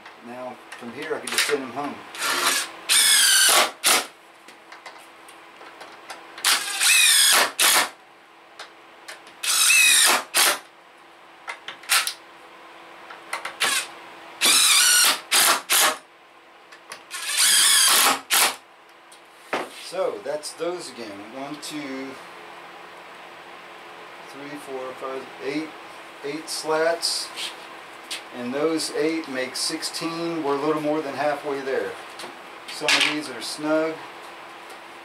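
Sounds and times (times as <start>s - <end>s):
impact driver driving screws: 2.2s - 4.1s, 6.4s - 7.9s, 9.4s - 10.6s, 13.6s - 16.0s, 17.1s - 18.6s.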